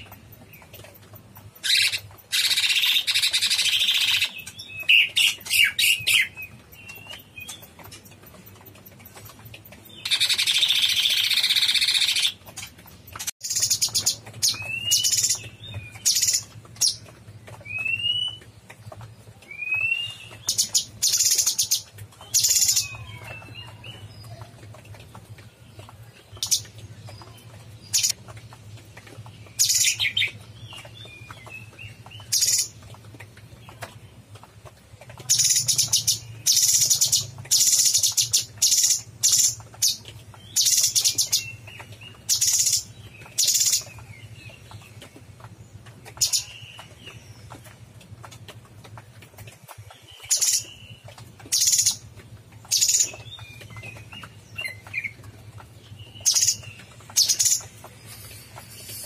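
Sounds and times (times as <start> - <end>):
bird singing scratchy bursts: 0.0 - 18.7.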